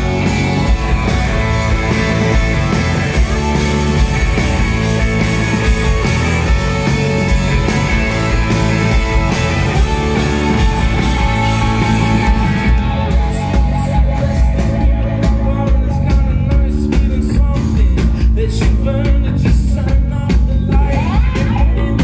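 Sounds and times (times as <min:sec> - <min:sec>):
bass: 0:00.0 - 0:22.0
distorted electric guitars: 0:00.0 - 0:22.0
drums: 0:00.0 - 0:22.0
person singing: 0:12.0 - 0:22.0.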